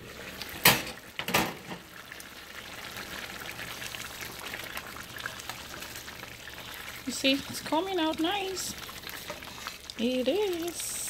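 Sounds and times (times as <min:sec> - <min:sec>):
soup bubbling in a pot: 0:00.0 - 0:11.0.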